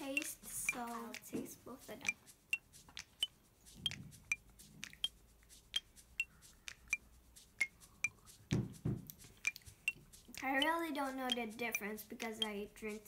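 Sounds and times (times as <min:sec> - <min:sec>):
soft low thumps: 0:07.6 - 0:11.5.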